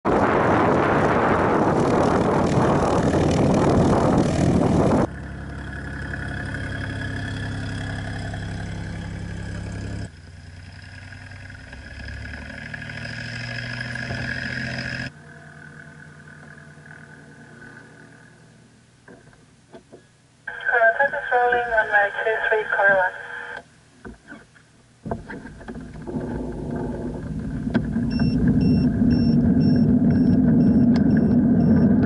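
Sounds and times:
wind rushing on microphone: 0:00.1 - 0:05.1.

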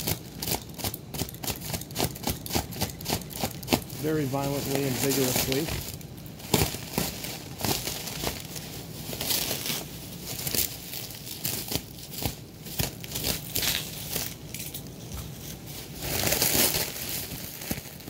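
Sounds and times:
packaging crinkling and tearing: 0:00.0 - 0:18.0.

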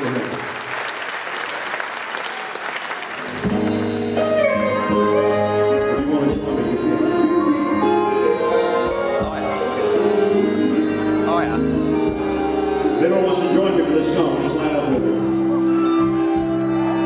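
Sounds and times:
audience applauding: 0:00.0 - 0:04.3
rock band playing chords: 0:03.2 - 0:17.0.

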